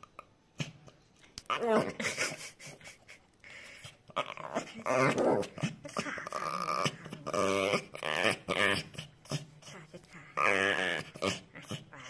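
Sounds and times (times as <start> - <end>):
dog grumbling: 4.1 - 12.0.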